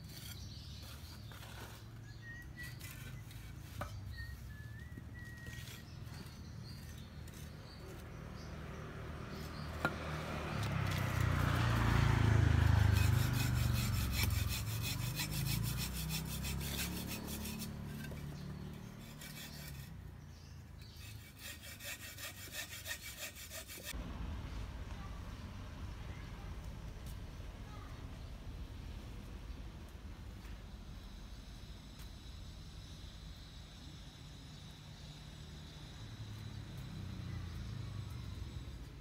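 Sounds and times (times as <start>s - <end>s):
rhythmic rasping strokes: 12.6s - 19.9s, 20.8s - 24.0s
low rumble: 24.0s - 32.7s.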